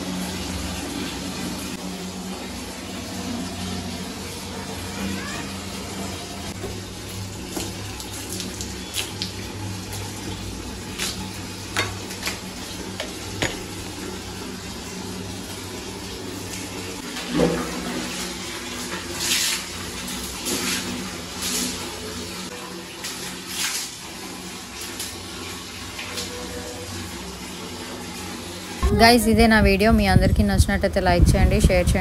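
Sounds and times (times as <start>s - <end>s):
water splashing on door and tiles: 6.5s - 14.4s.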